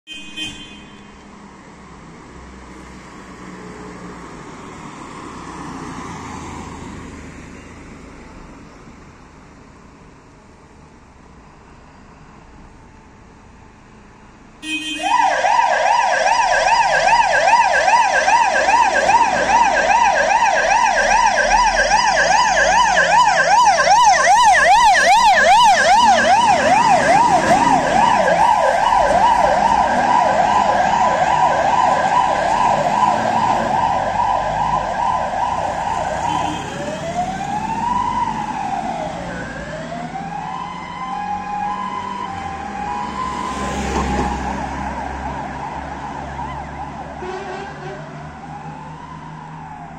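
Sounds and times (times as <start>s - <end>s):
fire engine siren wailing: 14.9s - 49.9s.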